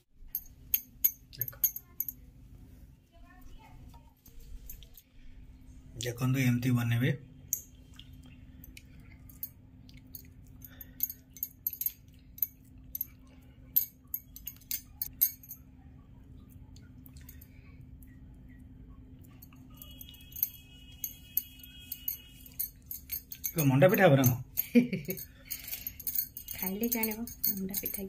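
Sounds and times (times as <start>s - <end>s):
low steady hum: 0.0s - 28.0s
steel spoon clinking: 0.3s - 2.2s, 9.3s - 13.2s, 13.8s - 15.6s, 19.4s - 28.0s.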